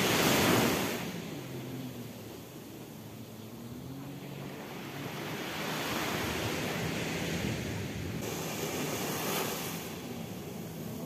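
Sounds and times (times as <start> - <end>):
sea waves breaking on beach: 0.0 - 11.0
wind on microphone: 4.4 - 11.0.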